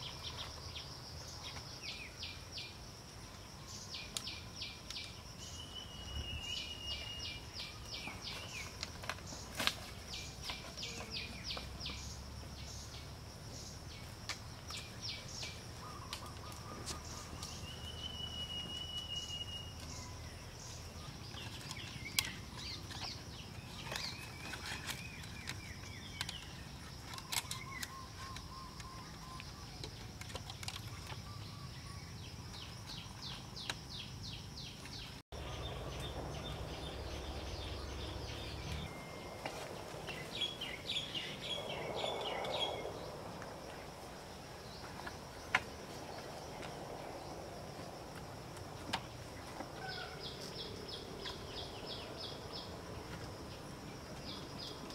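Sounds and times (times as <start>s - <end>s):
birds chipping and whistling: 0.0s - 47.4s
high-pitched insect hum: 0.0s - 54.9s.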